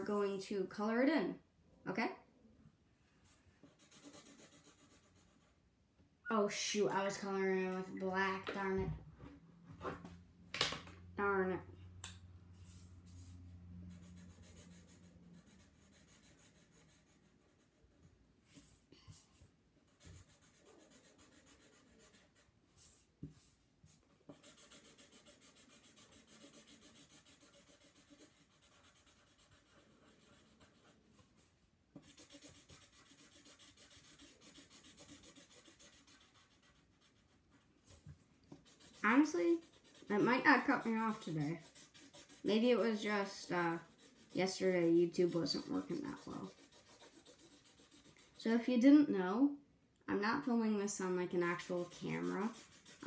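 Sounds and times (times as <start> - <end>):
marker scribbling on paper: 3.3 - 5.5, 12.6 - 48.6, 51.4 - 53.0.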